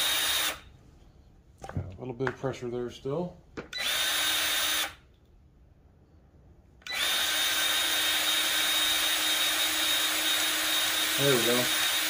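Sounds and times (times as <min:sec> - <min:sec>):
grease gun whining: 0:06.8 - 0:12.0.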